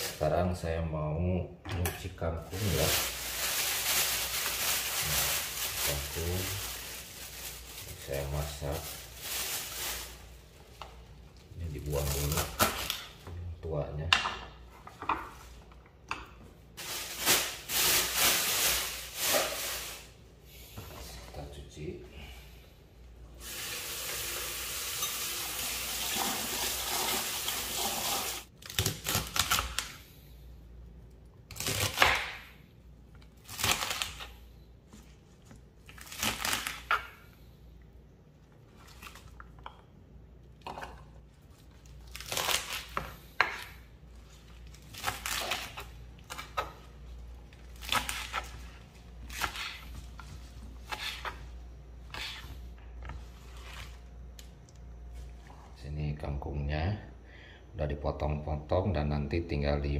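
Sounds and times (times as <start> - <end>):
kitchen tap running: 23.4 - 28.5.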